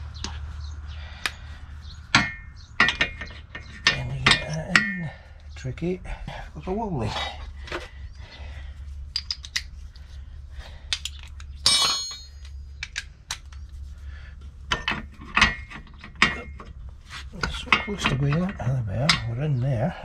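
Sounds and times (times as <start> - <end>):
steel hand tools clinking: 11.0 - 13.0
ringing metallic clink: 11.6 - 12.6.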